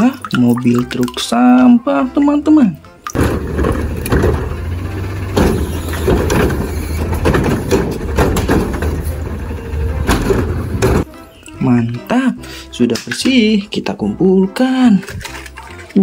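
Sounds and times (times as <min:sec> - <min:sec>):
truck engine idling: 0:03.2 - 0:11.0.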